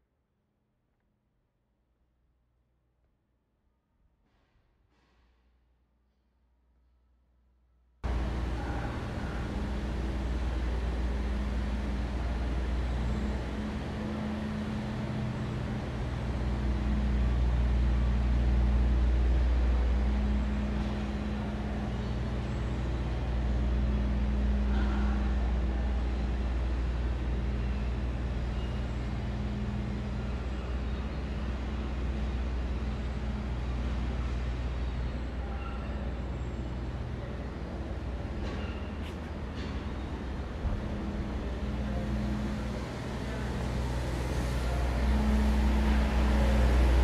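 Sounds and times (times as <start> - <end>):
motor traffic rumble: 8.0 - 47.0.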